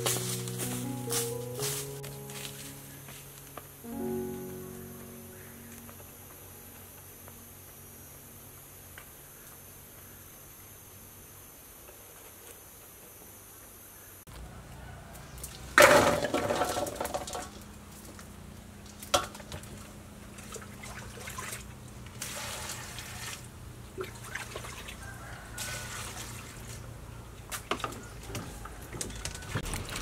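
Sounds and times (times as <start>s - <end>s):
water splashing in metal basin: 15.8s - 17.5s, 20.3s - 25.0s.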